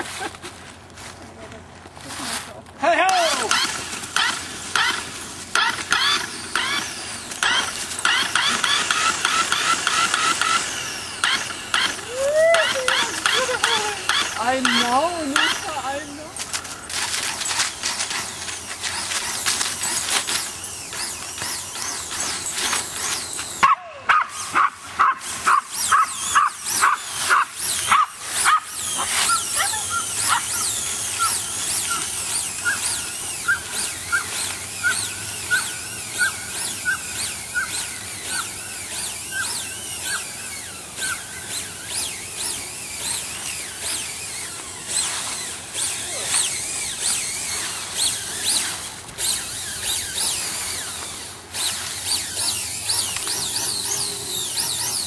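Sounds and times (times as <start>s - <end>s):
fast rattling and clicking: 3.1s - 15.8s, 16.4s - 23.6s, 25.2s - 55.0s
dog yelping: 11.2s - 14.5s, 23.6s - 38.6s, 39.3s - 40.3s.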